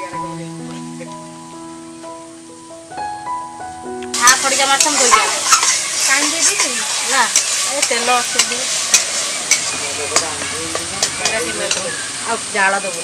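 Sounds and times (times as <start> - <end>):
curry sizzling in a pan: 0.0 - 13.0
spatula clicking against pan: 7.4 - 11.9.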